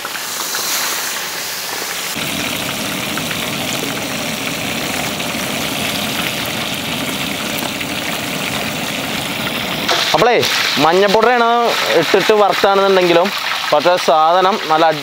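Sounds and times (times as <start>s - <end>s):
chicken deep-frying in oil: 0.0s - 15.0s
low steady rumble: 2.2s - 9.9s.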